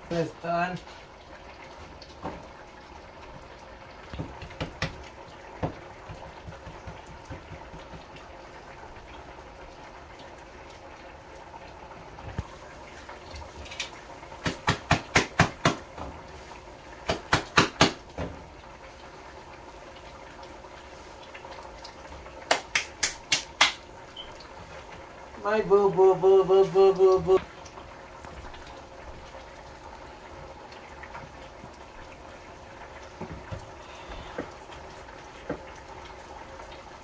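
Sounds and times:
food sizzling and simmering: 0:00.0 - 0:37.0
sharp slaps: 0:14.4 - 0:15.8, 0:17.1 - 0:18.0, 0:22.5 - 0:23.8.

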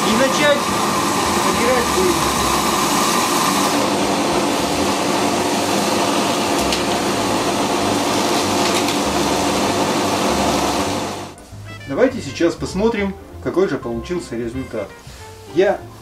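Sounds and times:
vacuum cleaner running: 0:00.0 - 0:11.4.

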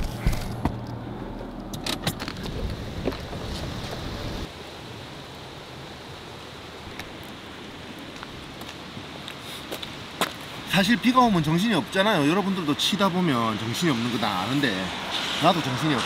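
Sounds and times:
steady hiss: 0:04.1 - 0:16.0.

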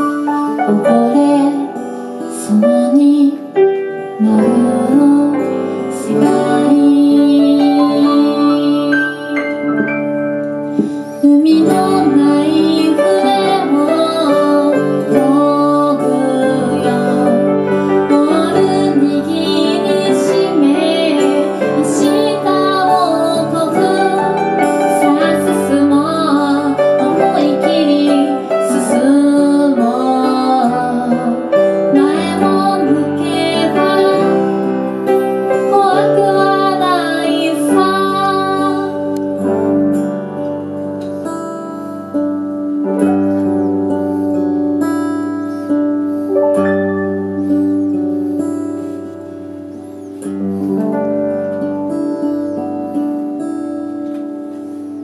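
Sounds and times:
woman singing: 0:00.0 - 0:10.0, 0:10.8 - 0:40.1
acoustic guitar: 0:00.0 - 0:55.0
piano: 0:00.0 - 0:55.0.

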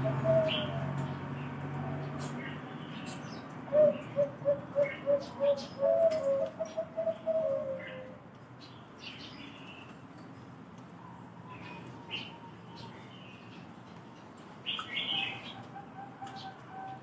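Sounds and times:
dove cooing: 0:00.0 - 0:02.8, 0:03.7 - 0:08.2, 0:14.9 - 0:17.0
small birds chirping: 0:00.0 - 0:17.0.

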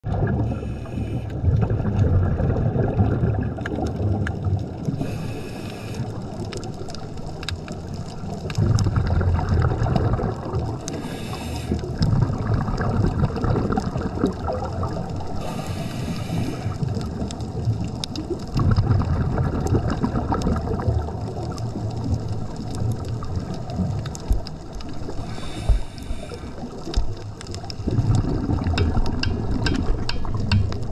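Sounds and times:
exhaled bubbles gurgling: 0:00.0 - 0:30.9
regulator inhale hiss: 0:00.5 - 0:01.4, 0:04.9 - 0:06.3, 0:10.9 - 0:12.1, 0:15.4 - 0:16.8, 0:25.1 - 0:26.8.

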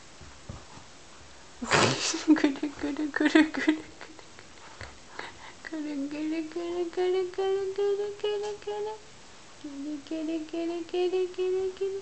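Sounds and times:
person singing a simple tune: 0:05.6 - 0:12.0.

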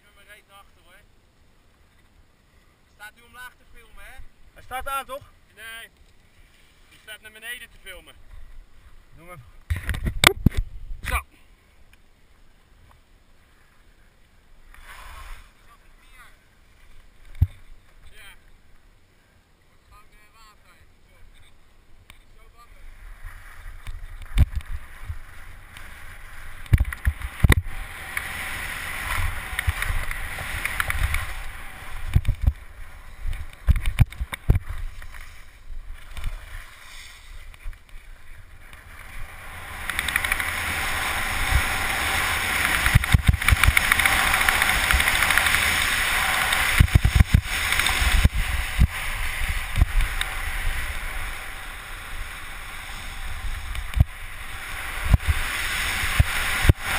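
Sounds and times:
skis scraping over snow: 0:14.8 - 0:15.8, 0:22.8 - 0:56.9
wind buffeting microphone: 0:39.0 - 0:56.9.

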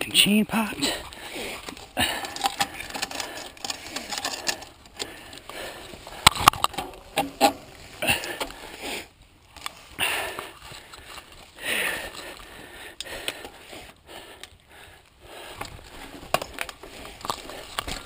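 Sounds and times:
bike chain clicking and rattling: 0:00.8 - 0:08.8, 0:10.0 - 0:18.0
scraping and rustling: 0:00.9 - 0:05.2.

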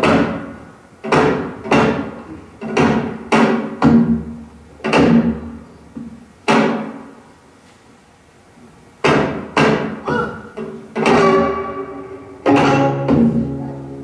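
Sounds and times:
traditional percussion strikes: 0:11.0 - 0:13.4.

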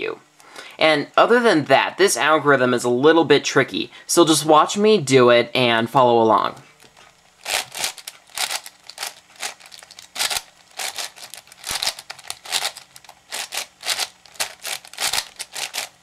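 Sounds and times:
puzzle cube turning scrapes: 0:06.9 - 0:16.0.

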